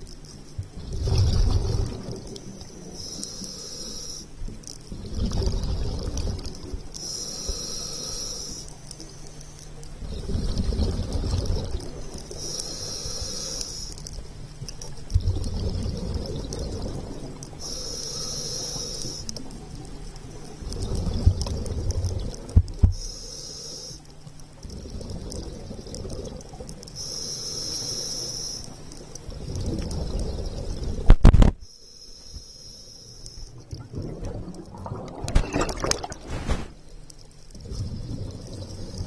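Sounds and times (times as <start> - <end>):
exhaled bubbles rumbling: 0.6 - 2.9, 4.4 - 7.0, 9.9 - 12.4, 14.2 - 17.6, 19.4 - 23.0, 24.5 - 26.9, 29.1 - 31.5, 33.5 - 36.9, 37.5 - 39.0
regulator hissing inhale: 2.6 - 4.4, 7.0 - 9.6, 12.2 - 14.1, 17.6 - 19.4, 22.9 - 24.1, 26.9 - 29.0, 31.6 - 33.6.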